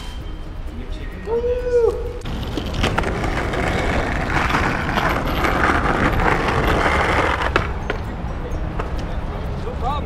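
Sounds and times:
skateboard wheels rolling on asphalt: 2.2 - 8.1.

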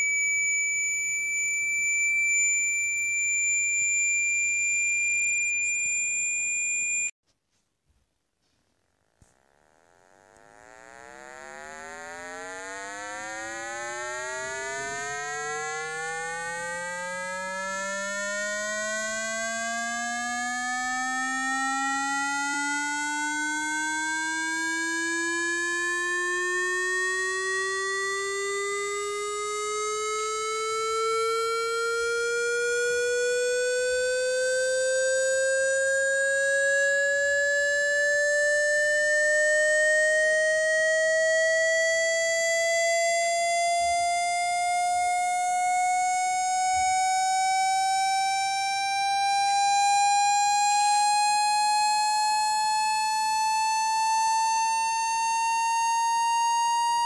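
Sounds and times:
buzzy electronic tone rising in pitch: 9.5 - 40.8.

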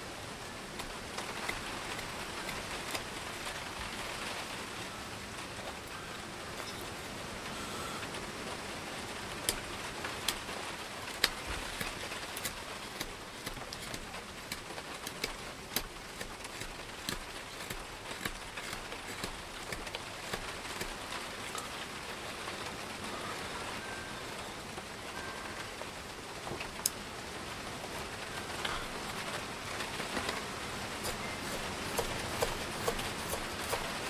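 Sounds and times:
heavy rain falling: 0.0 - 34.0
knife cutting wood shavings: 0.7 - 4.2, 11.1 - 21.8, 30.2 - 34.0.

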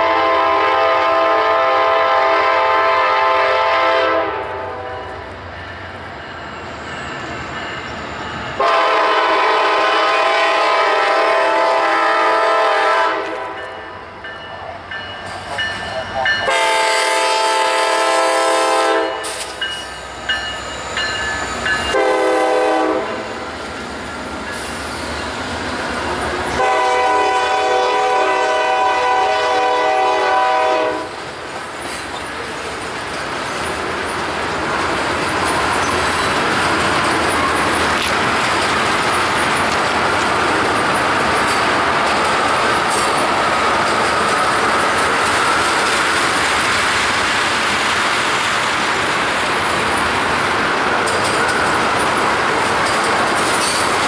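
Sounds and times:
locomotive air horn blasts: 0.0 - 5.1, 8.6 - 13.6, 16.4 - 19.4, 21.9 - 23.3, 26.5 - 31.1
train rumbling by: 0.0 - 54.0
wheels clicking over rail joints: 31.5 - 54.0.

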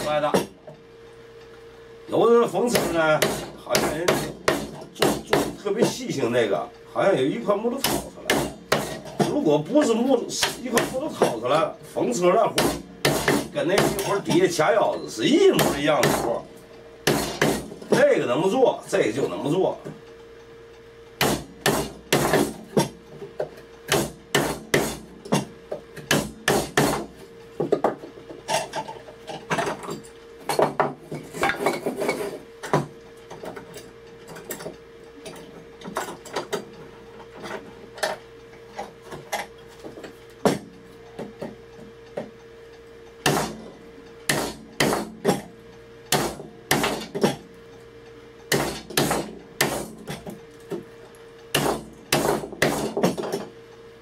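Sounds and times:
hammer striking chisel: 2.7 - 5.6, 7.8 - 9.4, 10.4 - 11.4, 12.6 - 14.2, 15.6 - 16.3, 17.0 - 17.6, 21.2 - 23.0, 23.9 - 27.9, 43.2 - 43.6, 44.3 - 45.5, 46.1 - 47.4, 48.5 - 50.2, 51.5 - 53.4.

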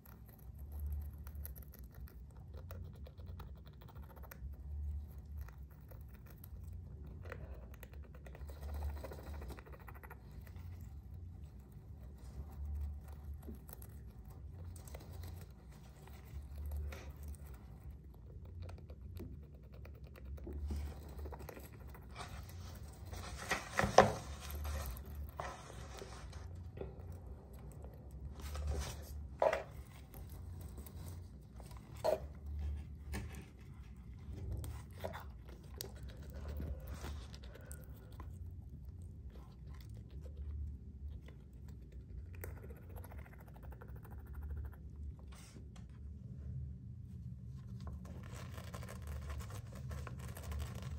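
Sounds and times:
low uneven rumble: 0.0 - 50.9
hamster scratching wall: 3.8 - 37.8.

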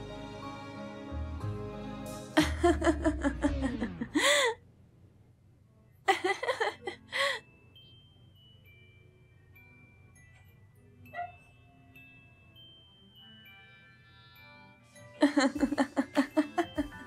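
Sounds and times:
person laughing: 2.4 - 4.6, 6.1 - 7.4, 15.2 - 17.0.

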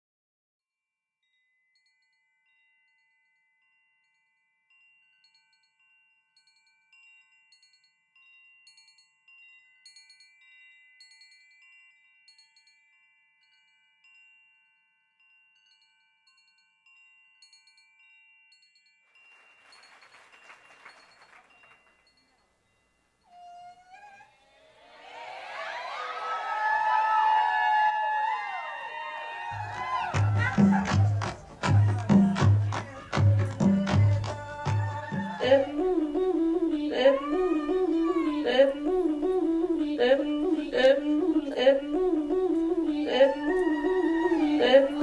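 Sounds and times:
wind chimes ringing: 1.2 - 24.2, 29.4 - 38.7.

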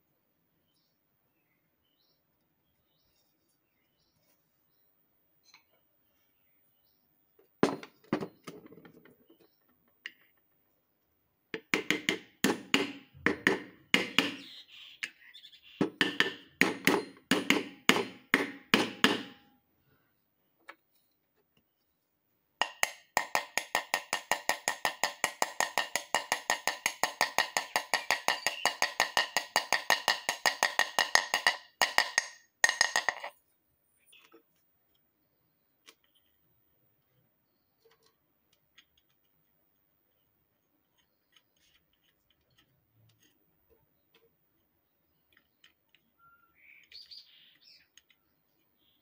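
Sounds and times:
hammer tapping on metal: 15.8 - 19.5, 22.6 - 33.3.

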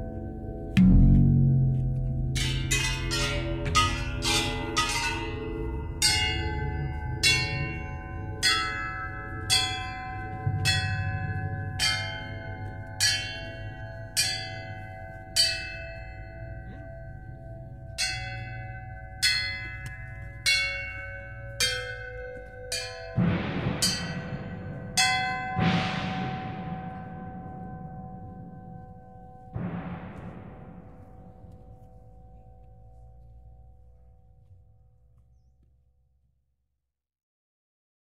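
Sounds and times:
low drone: 0.0 - 15.1
struck bells ringing: 0.0 - 35.0.

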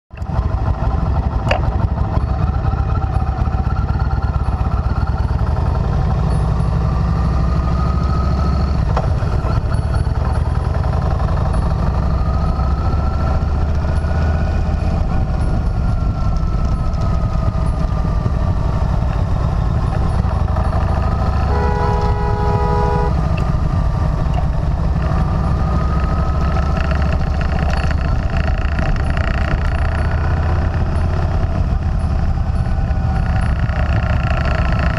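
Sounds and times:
motorcycle engine running: 0.1 - 34.9
road and wind noise: 0.1 - 34.9
vehicle horn: 20.9 - 23.7.

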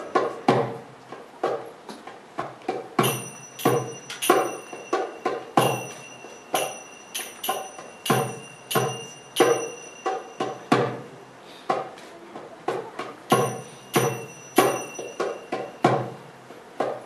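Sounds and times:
hand drum strokes: 0.0 - 17.0
finger cymbals ringing: 3.0 - 11.4, 13.3 - 16.3.

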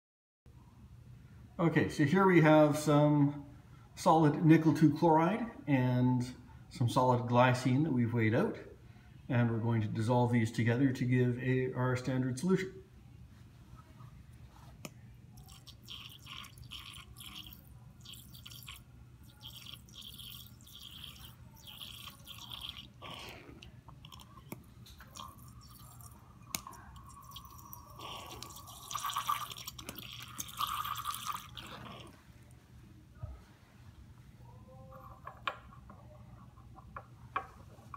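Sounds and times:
water squirting and spattering: 15.4 - 23.0.

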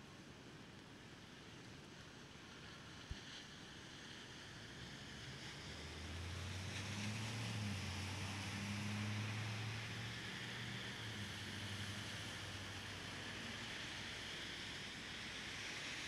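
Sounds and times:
rain hiss: 1.0 - 16.0
wet traffic: 1.9 - 16.0
vehicle engine hum: 4.8 - 16.0.

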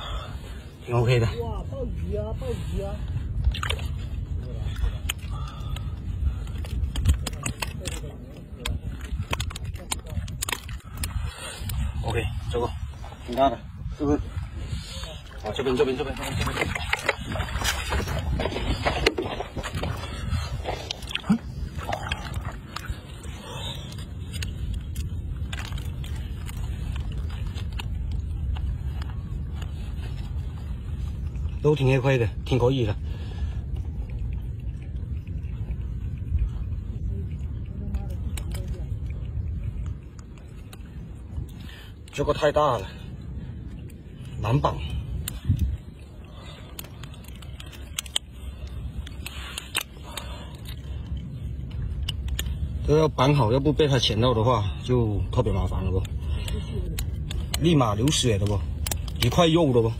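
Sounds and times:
low rumble: 0.0 - 59.9
crab clicks and scrapes: 3.2 - 59.9.

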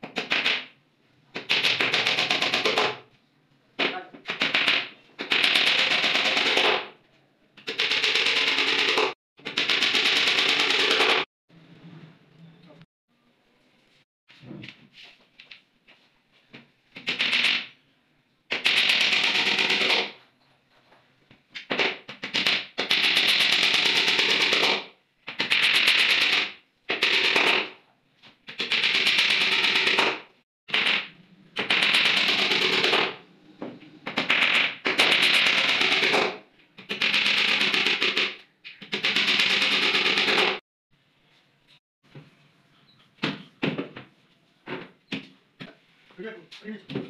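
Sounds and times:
hammer driving nails: 1.4 - 3.0, 4.2 - 6.9, 7.6 - 11.3, 18.5 - 20.2, 21.6 - 27.8, 28.5 - 33.2, 34.0 - 40.6.

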